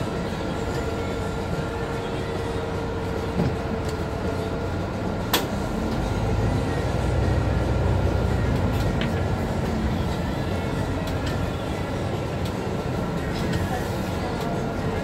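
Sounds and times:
bus engine and road rumble: 0.0s - 15.0s.

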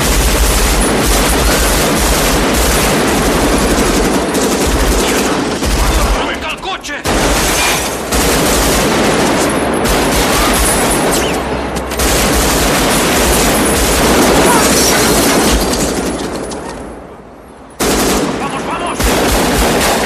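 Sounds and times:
automatic rifle fire: 0.0s - 6.2s, 7.0s - 11.4s, 17.8s - 20.0s.

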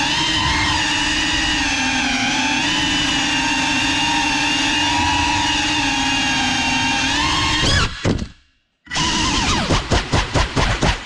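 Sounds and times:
drone motors whining: 0.0s - 8.3s, 8.9s - 9.9s.

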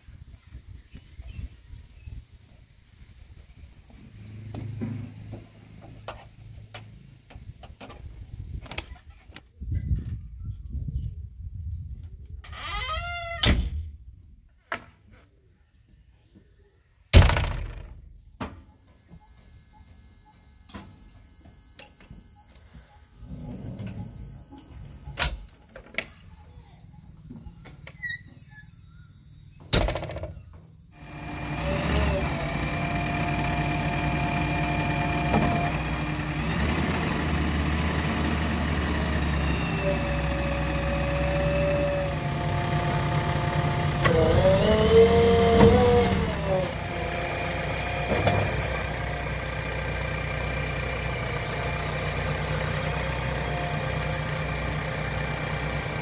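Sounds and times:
diesel engine starting and idling: 19.5s - 56.0s.

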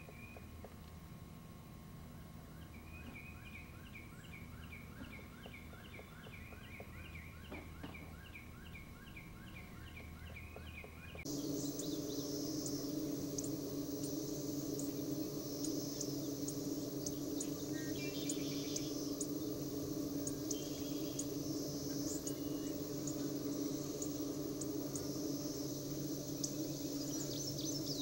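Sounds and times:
woodpecker calling: 2.6s - 25.2s
low hum: 8.0s - 28.0s
steady high hiss: 11.2s - 28.0s.

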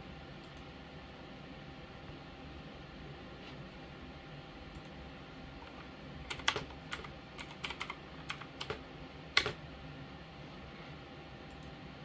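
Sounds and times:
computer keyboard keystrokes: 5.6s - 8.8s, 9.4s - 9.6s.

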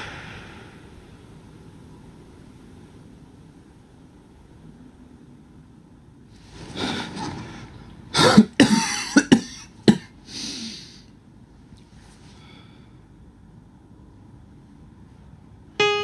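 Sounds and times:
breathing in and out: 0.0s - 1.5s, 10.2s - 11.2s, 11.9s - 13.2s
man coughing: 8.2s - 10.2s.

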